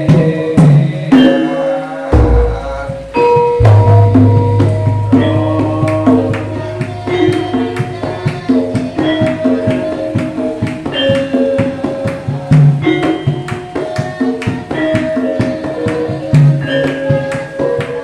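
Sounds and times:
sharp drum strokes: 0.0s - 18.0s
metallophones ringing: 1.1s - 18.0s
deep gong hum: 3.6s - 7.0s.

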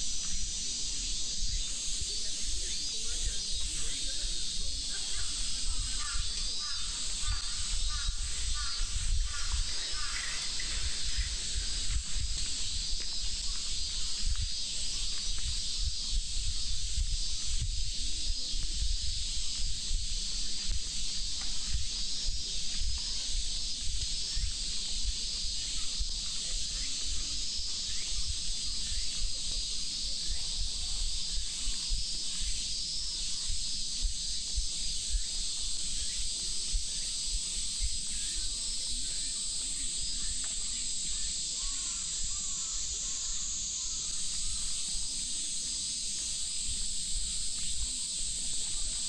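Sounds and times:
wind rumble on microphone: 0.0s - 39.1s
cicadas chorus: 0.0s - 49.0s.

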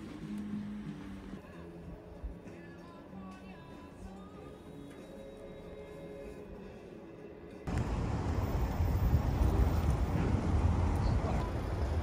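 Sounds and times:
quiet background music: 0.0s - 12.0s
traffic: 7.7s - 12.0s
wind rumble on microphone: 7.7s - 12.0s.

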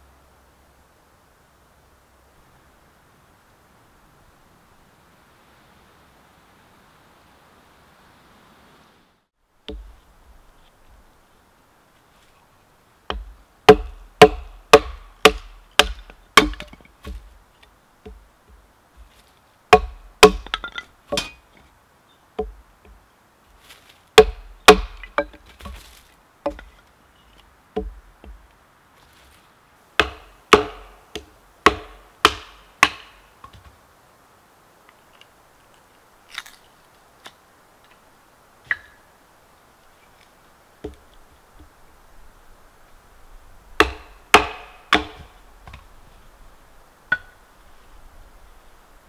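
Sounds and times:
firewood chopping: 9.7s - 10.0s, 13.1s - 17.4s, 18.0s - 21.4s, 22.4s - 23.0s, 24.2s - 26.8s, 27.8s - 28.4s, 30.0s - 33.6s, 43.8s - 45.9s.

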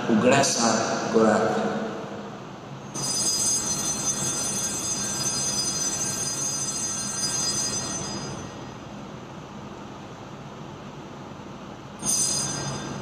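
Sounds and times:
low steady hum: 0.0s - 13.0s
altar bells jingling: 12.0s - 13.0s.

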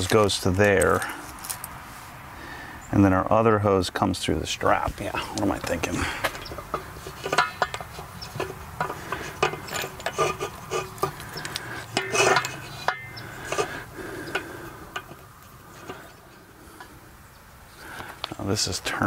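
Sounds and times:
garden hose fittings clicking and rubbing: 0.0s - 1.8s, 4.7s - 17.0s.

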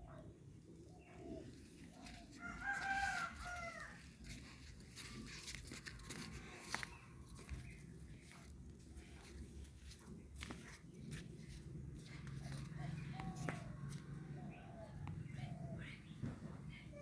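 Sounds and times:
rooster crowing: 2.3s - 4.1s.

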